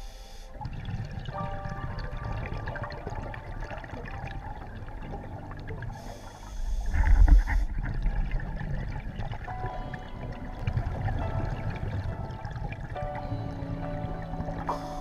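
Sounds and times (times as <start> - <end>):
regulator inhalation hiss: 0.0 - 0.5
low underwater rumble: 0.0 - 15.0
exhaled bubbles rushing: 0.5 - 15.0.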